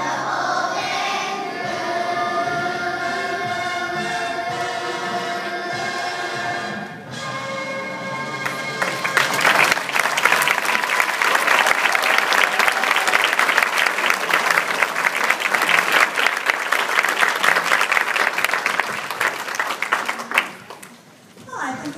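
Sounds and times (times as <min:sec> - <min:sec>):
audience applauding: 0:08.4 - 0:21.0.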